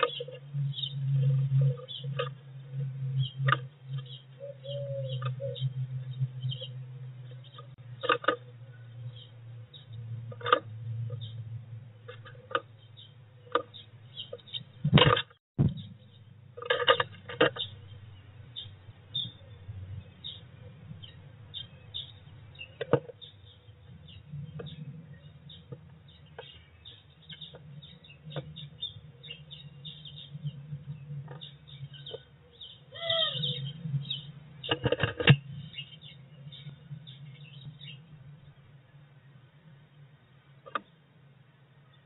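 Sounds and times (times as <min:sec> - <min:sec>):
low steady hum: 0:00.0 - 0:42.0
short falling bird call: 0:32.9 - 0:33.6.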